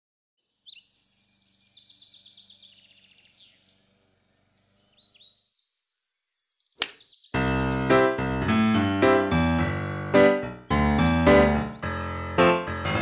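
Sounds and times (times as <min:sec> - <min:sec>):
bird trilling chirps: 0:00.4 - 0:07.4.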